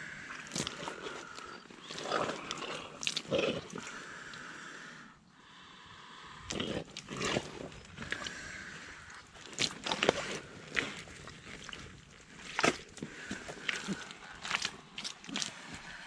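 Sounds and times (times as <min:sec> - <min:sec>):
boots squelching in mud: 0:00.3 - 0:03.9, 0:06.5 - 0:16.0.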